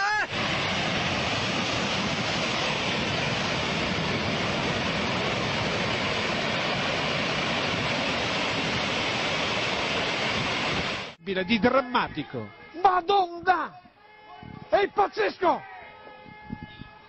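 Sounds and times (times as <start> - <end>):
rockslide roaring: 0.0 - 11.2.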